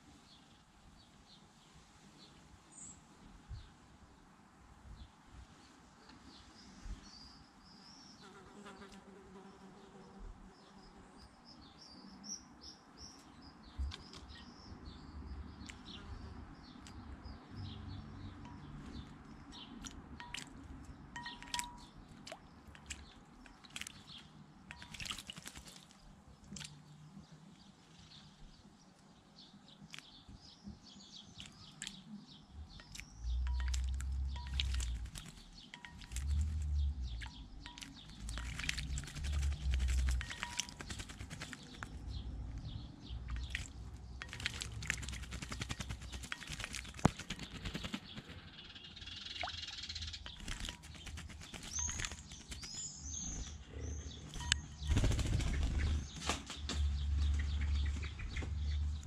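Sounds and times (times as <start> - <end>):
bird splashing in water: 19.8 - 26.8, 32.9 - 42.2, 43.2 - 48.4, 50.2 - 53.0
wing flutters: 38.3 - 42.0, 44.2 - 48.5, 50.4 - 52.9, 54.8 - 56.8.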